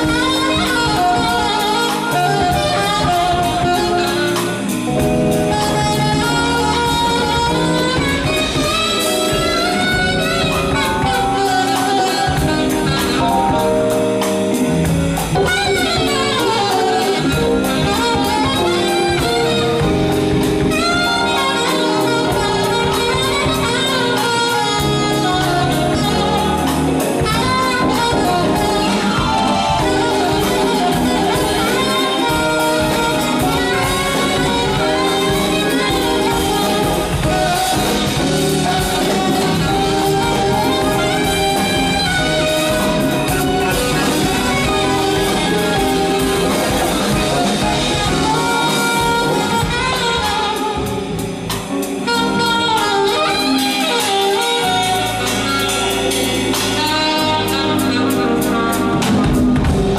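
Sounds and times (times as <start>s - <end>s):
cymbals: 0.0s - 59.9s
live jazz band playing: 0.0s - 59.9s
saxophone lead: 0.0s - 59.9s.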